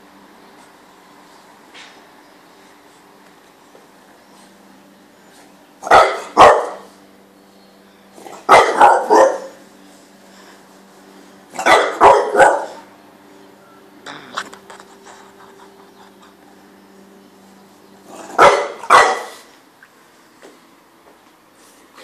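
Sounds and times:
dog barking: 0:05.8 - 0:06.9, 0:08.3 - 0:09.6, 0:11.6 - 0:12.9, 0:18.2 - 0:19.5.

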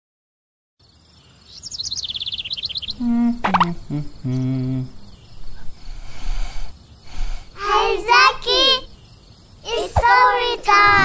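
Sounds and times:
held low hum: 0:02.9 - 0:08.5
cartoon chirping trill: 0:03.0 - 0:04.1
short gliding pitched sounds: 0:03.0 - 0:04.9.

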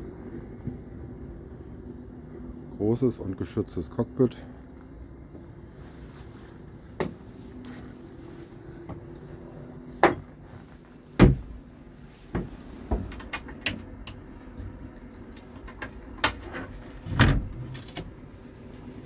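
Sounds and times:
wooden door knocks and clunks: 0:11.2 - 0:11.6.

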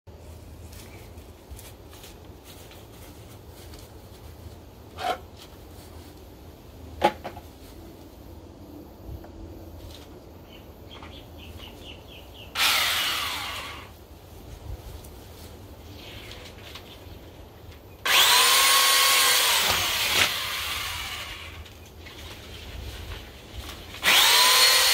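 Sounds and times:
pole trimmer motor whine: 0:12.5 - 0:13.9, 0:18.0 - 0:21.7, 0:24.0 - 0:24.9.

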